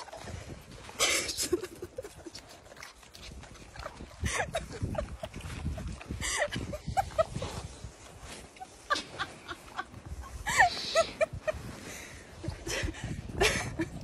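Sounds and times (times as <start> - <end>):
animals chewing and licking: 0.0 - 8.8.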